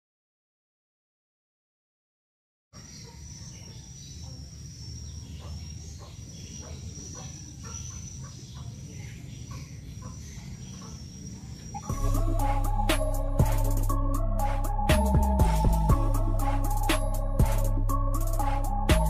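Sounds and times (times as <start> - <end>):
insect trill: 2.8 - 9.2, 10.0 - 19.0
loud music: 11.9 - 19.0
low rumble: 11.9 - 19.0.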